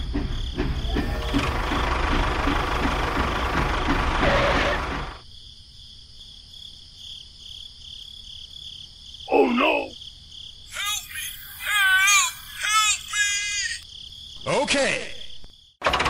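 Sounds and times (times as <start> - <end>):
tractor motor rumbling: 0.8 - 5.2
groaning voice: 9.3 - 10.0.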